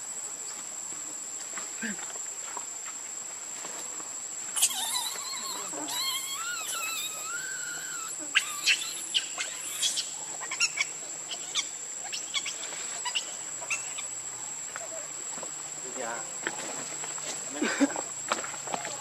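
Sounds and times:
high insect drone: 0.0s - 19.0s
monkey clicks and squeaks: 4.6s - 10.8s
monkey whining call: 4.6s - 14.1s.

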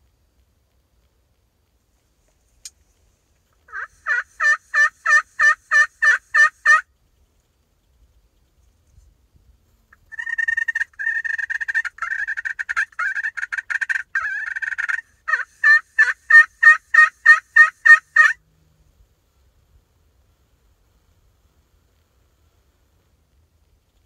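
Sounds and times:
turkey call rattling notes: 3.6s - 6.9s, 10.0s - 18.4s
turkey call yelps: 3.7s - 6.9s, 10.0s - 18.4s.

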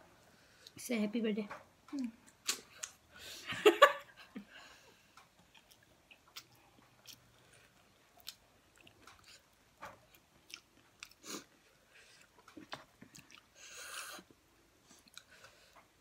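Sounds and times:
chewing and lip-smacking: 5.2s - 15.7s.

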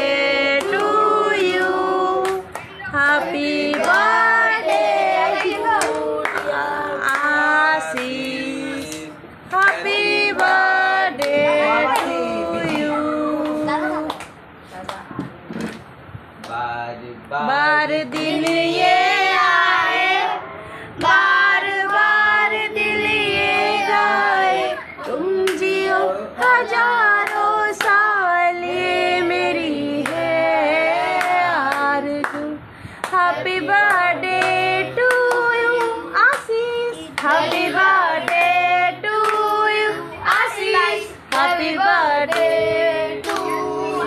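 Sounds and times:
hand claps: 13.4s - 15.0s, 40.3s - 40.5s, 42.3s - 42.6s, 43.2s - 43.6s
high voice singing: 33.2s - 44.0s.

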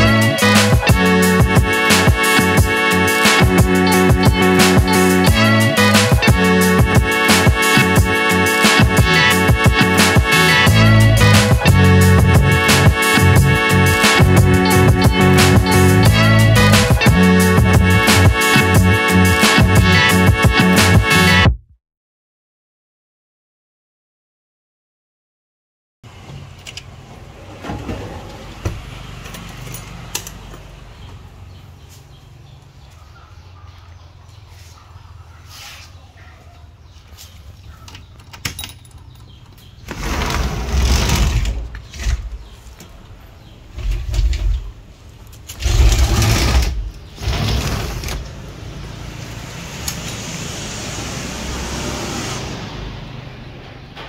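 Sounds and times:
sliding glass doors rumbling: 26.2s - 29.6s, 39.8s - 54.0s
key jangling in lock: 37.9s - 39.6s.

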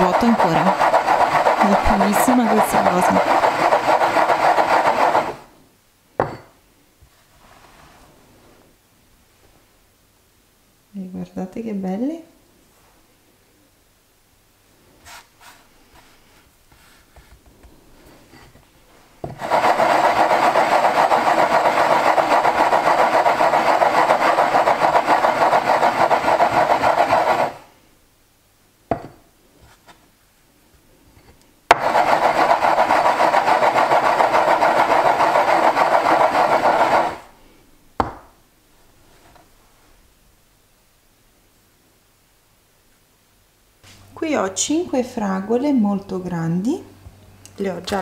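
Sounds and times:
glass rim scraping wooden board: 0.0s - 5.4s.

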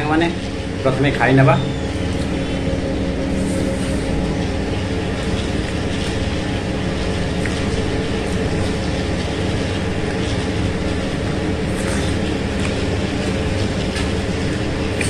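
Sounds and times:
faint steady low tones: 0.0s - 11.6s
machine hum and rush: 0.0s - 15.0s.

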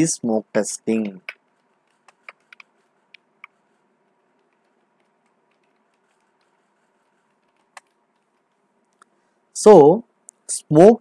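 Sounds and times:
low room hiss: 0.0s - 11.0s
keyboard typing: 0.9s - 9.0s.

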